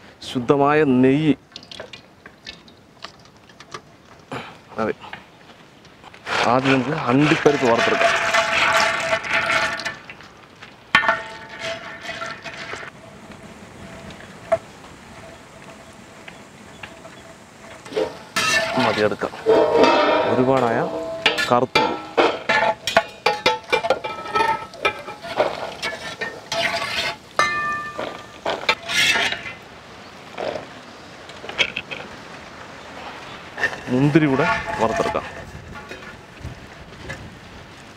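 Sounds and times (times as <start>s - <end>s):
nuts clattering into metal pot: 6.3s - 10.2s, 17.9s - 29.5s
nuts sizzling in hot fat: 12.8s - 19.5s
ladle clanging against vessel: 16.9s - 29.5s.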